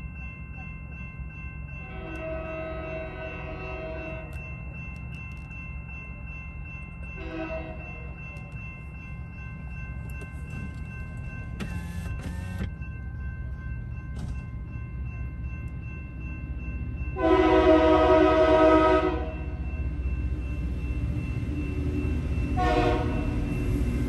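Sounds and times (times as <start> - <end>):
crossing bell ringing: 0.0 - 24.0
train horn blast: 17.2 - 19.4, 22.6 - 23.3.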